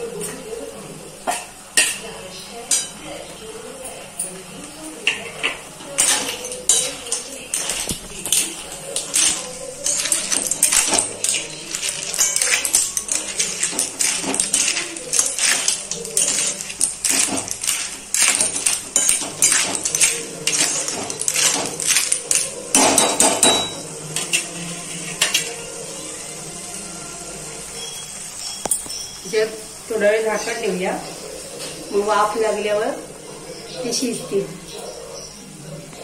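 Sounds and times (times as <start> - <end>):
metal spoon scraping pan and shells: 3.9 - 25.7.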